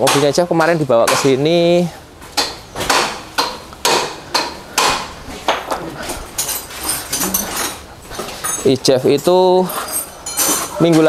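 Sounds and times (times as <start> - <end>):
hammer striking metal: 0.0 - 1.4, 2.4 - 5.6
light metallic clinks: 6.3 - 11.0.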